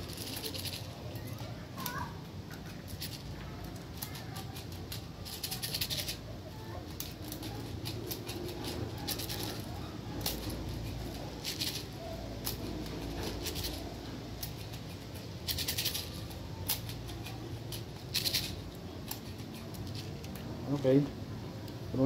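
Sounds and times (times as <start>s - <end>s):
pistol clicks and rattles: 2.5s - 20.6s.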